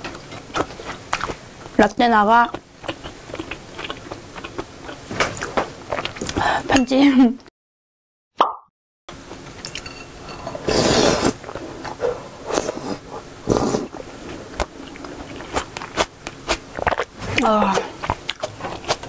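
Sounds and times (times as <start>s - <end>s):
chewing: 0.0s - 1.4s, 2.5s - 6.4s, 11.4s - 19.0s
slurping broth: 10.3s - 19.0s.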